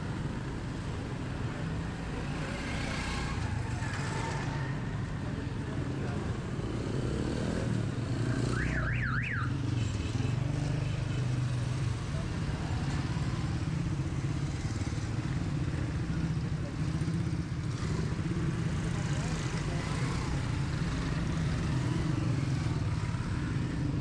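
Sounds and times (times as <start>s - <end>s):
vehicle engines passing: 0.0s - 24.0s.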